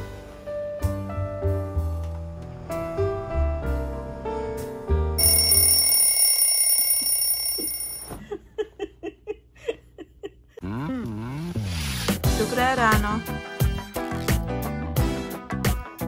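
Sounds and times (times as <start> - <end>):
ringing tone: 5.2 - 8.1.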